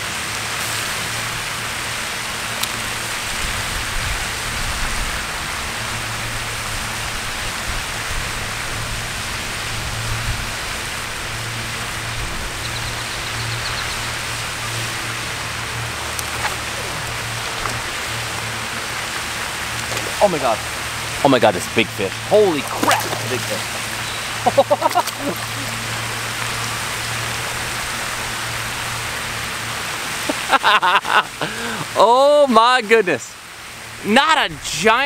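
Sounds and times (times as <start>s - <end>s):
fountain water splashing: 0.0s - 35.0s
low steady hum: 11.0s - 29.3s.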